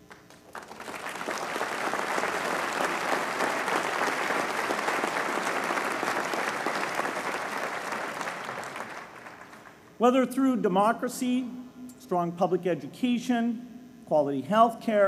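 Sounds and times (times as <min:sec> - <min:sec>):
large audience applauding: 0:00.0 - 0:09.8.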